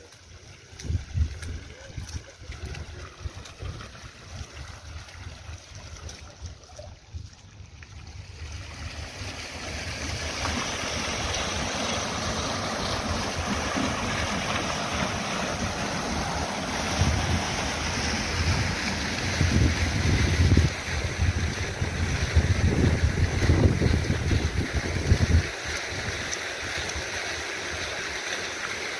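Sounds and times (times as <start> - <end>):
fountain splashing into pool: 0.0 - 28.9
wind buffeting microphone: 0.7 - 5.0, 12.9 - 25.6.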